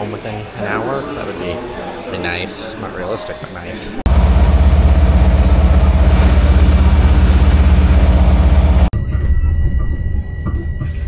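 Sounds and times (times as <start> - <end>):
thin high whine: 4.1 - 8.9
train car rumbling: 4.1 - 8.9.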